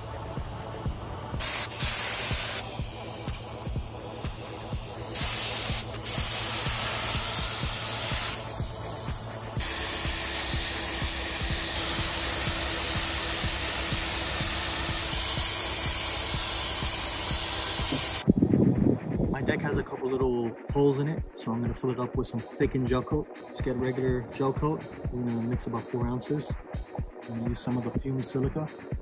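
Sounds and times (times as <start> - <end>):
spray gun hissing: 0.0 - 18.2.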